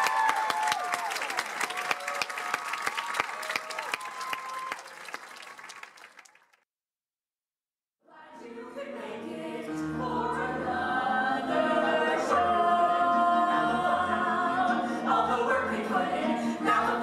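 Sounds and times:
whoops: 0.0 - 5.1
audience applauding: 0.0 - 6.6.

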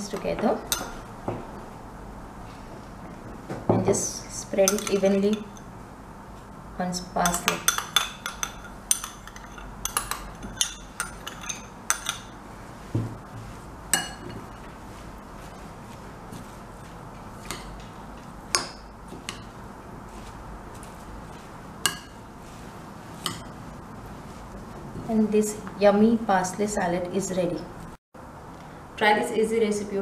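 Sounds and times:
metal utensil clinking against bowl: 4.6 - 5.7, 7.2 - 12.3.

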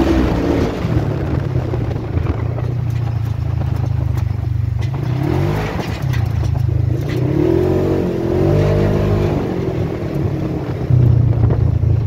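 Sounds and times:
vehicle engine accelerating: 0.0 - 12.0
knocks and rattles: 1.1 - 7.4.

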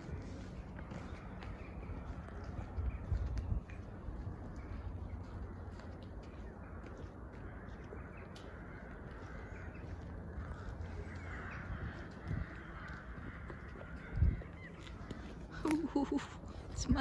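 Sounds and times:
footsteps on wet path: 0.0 - 17.0
birds calling: 0.1 - 17.0
wind on microphone: 2.6 - 4.6, 11.4 - 14.6.

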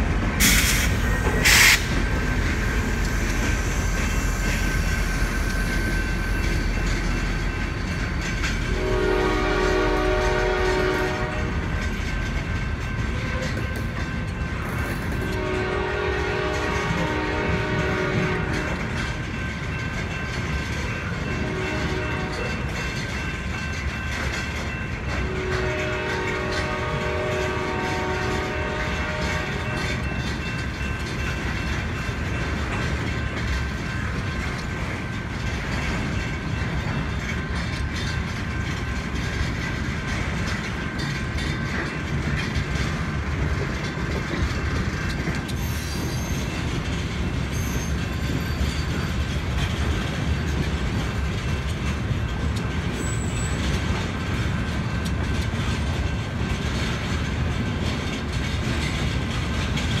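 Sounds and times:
freight train wheels rumbling: 0.0 - 60.0
locomotive horn: 8.7 - 11.7, 15.2 - 19.0, 21.4 - 22.6, 25.2 - 30.0
high wheel squeal: 45.6 - 46.6, 47.5 - 49.1, 52.9 - 53.7.

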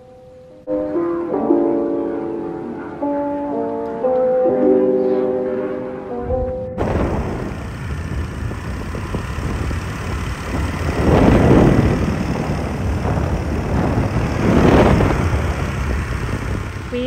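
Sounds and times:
wind rushing over microphone: 6.2 - 17.0
small engine running: 6.8 - 17.0.

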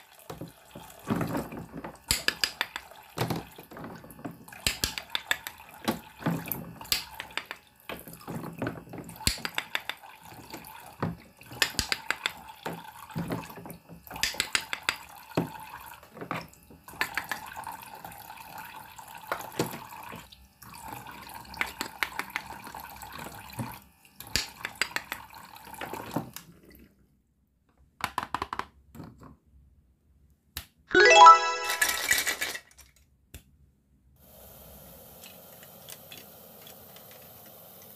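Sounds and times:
water running from faucet: 0.0 - 26.3, 34.2 - 37.9
plastic toy pieces clattering: 31.0 - 33.1.

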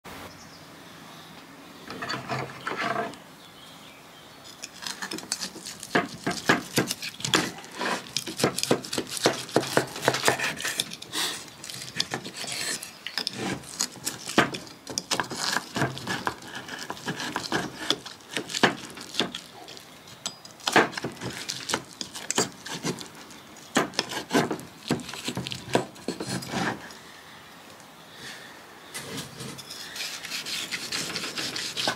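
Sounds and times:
knife scraping on wooden board: 4.5 - 26.9, 29.0 - 31.9.

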